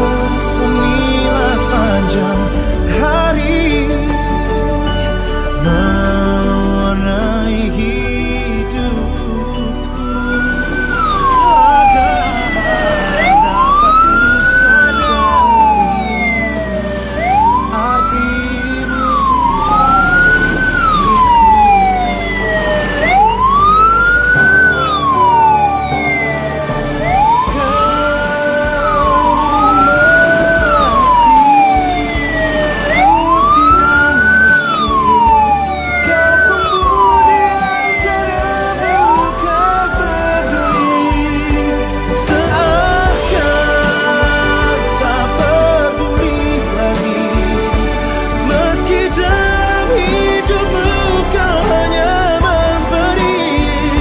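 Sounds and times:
vehicle siren wailing: 10.0 - 41.3.

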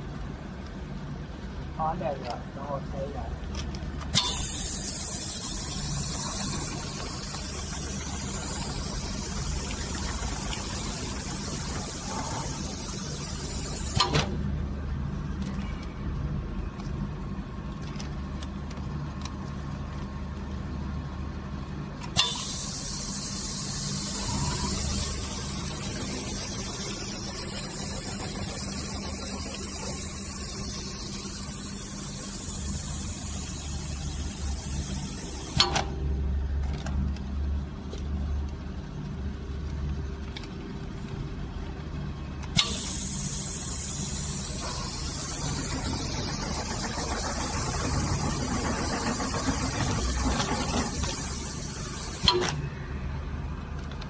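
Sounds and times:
low machine hum: 0.0 - 54.0
loud steady hiss: 4.1 - 14.2, 22.2 - 35.7, 42.6 - 52.5.

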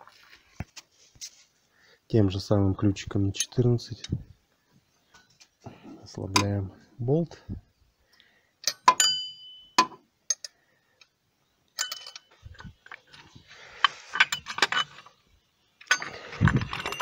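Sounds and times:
metallic wrench clinks: 11.8 - 12.4, 15.9 - 17.0
clicks and scraping rattles: 11.8 - 15.2, 15.8 - 17.0.

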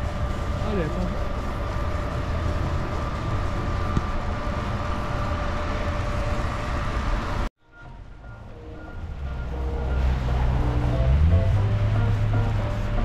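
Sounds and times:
motor rumbling with whine: 0.0 - 13.0.

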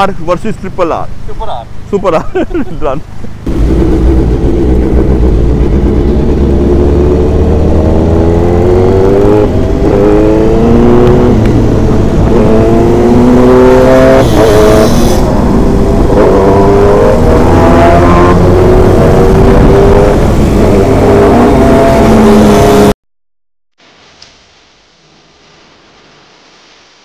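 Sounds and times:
motorcycle engines accelerating: 2.0 - 22.9.

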